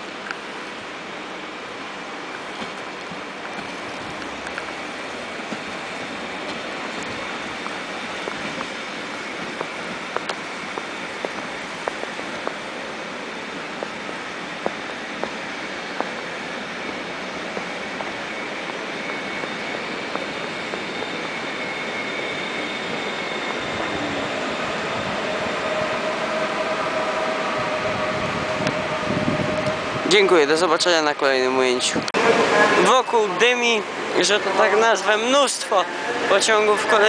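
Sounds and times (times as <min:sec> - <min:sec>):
electric train rumbling: 0:00.0 - 0:37.0
motor whine sliding down in pitch: 0:19.2 - 0:37.0.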